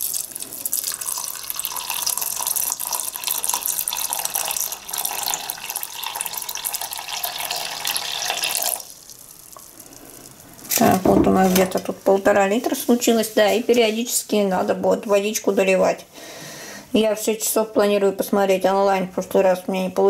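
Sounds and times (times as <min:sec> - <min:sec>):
water pouring into metal pot: 0:00.0 - 0:10.4.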